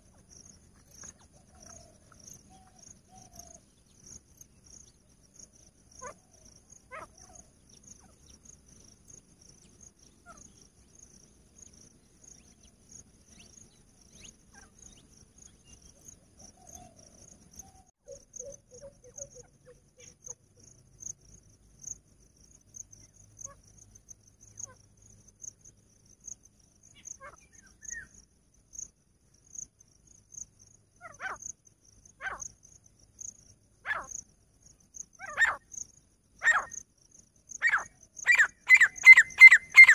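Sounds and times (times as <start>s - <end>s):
francolin calls: 0.0s - 3.8s, 5.9s - 8.5s, 12.3s - 21.2s, 26.8s - 28.2s, 31.0s - 31.5s, 32.1s - 32.6s, 33.8s - 34.2s, 35.0s - 35.8s, 36.4s - 36.8s, 37.5s - 39.9s
crickets chirring: 0.0s - 39.9s.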